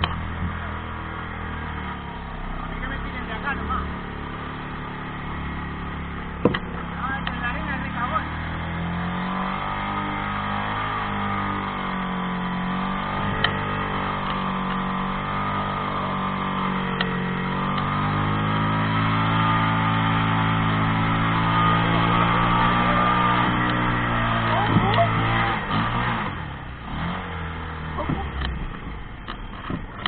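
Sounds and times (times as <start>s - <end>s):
buggy engine running under load: 0.0s - 30.0s
chassis knocks over bumps: 6.2s - 7.6s.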